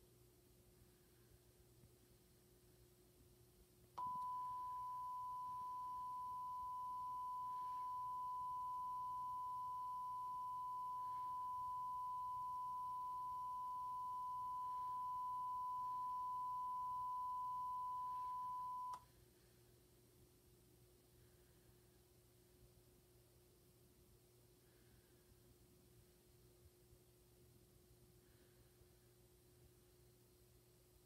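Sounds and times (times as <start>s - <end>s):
steady high-pitched tone: 4.0s - 19.0s.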